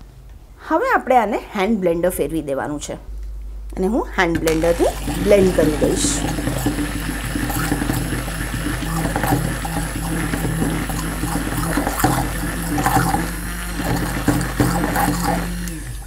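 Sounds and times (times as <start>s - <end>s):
hand blender motor humming: 4.3s - 16.0s
liquid sloshing in bowl: 4.4s - 15.9s.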